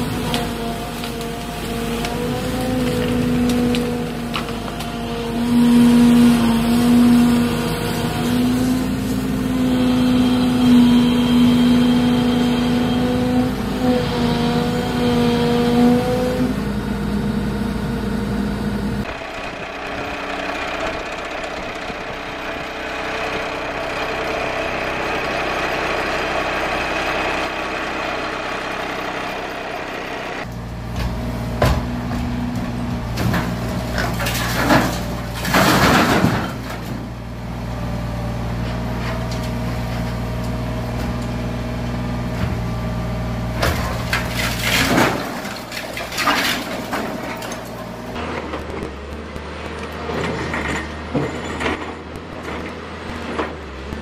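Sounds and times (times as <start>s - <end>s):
excavator engine running: 0.0s - 54.0s
demolition shear crunching brick: 30.5s - 37.2s, 43.4s - 54.0s.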